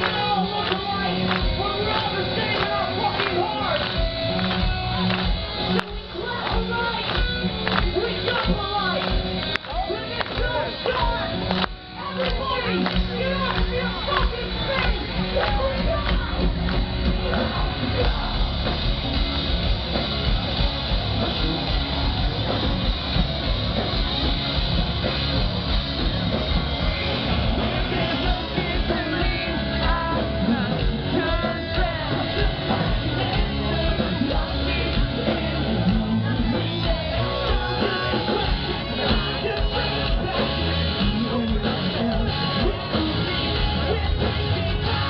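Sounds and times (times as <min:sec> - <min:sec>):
live rock band: 0:00.0 - 0:45.0
person singing: 0:26.6 - 0:45.0.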